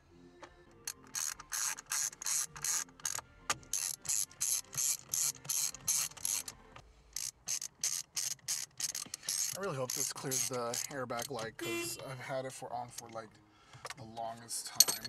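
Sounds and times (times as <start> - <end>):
hand ratchet clicking: 0.8 - 11.6.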